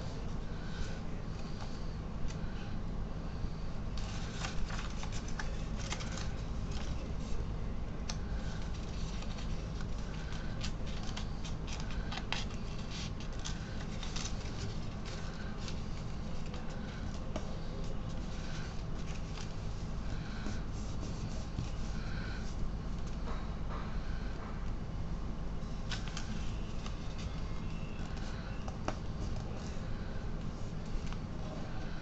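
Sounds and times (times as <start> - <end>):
steady low hum: 0.0 - 32.0
paper crinkling and rustling: 3.9 - 7.4, 8.1 - 23.2, 25.7 - 31.4.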